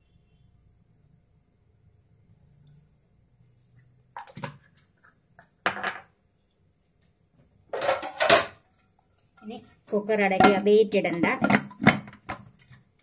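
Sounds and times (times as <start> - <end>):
metal cookware clattering: 7.7 - 8.8, 10.2 - 12.4.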